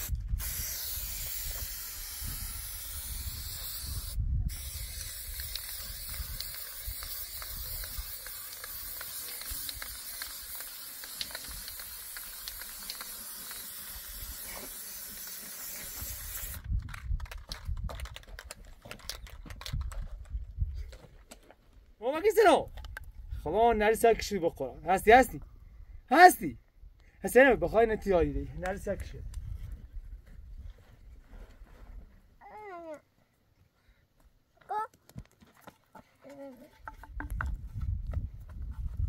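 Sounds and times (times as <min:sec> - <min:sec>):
spray can hissing: 0:00.0 - 0:16.6.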